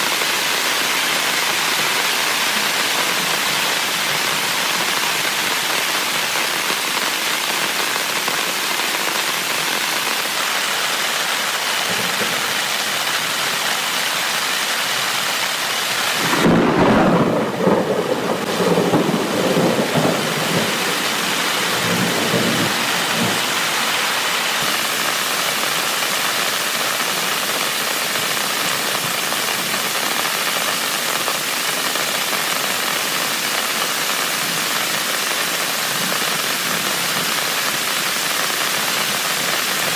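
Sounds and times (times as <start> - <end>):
heavy rain on a tent: 0.0 - 39.9
thunder rumbling: 16.2 - 24.2.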